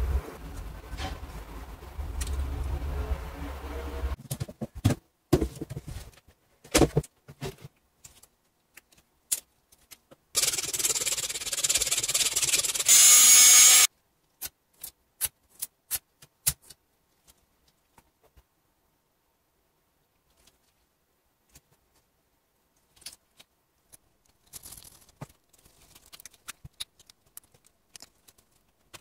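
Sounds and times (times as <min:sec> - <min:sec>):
low hum: 0:00.0 - 0:04.2
gloved hands rubbing and rustling: 0:20.1 - 0:29.0.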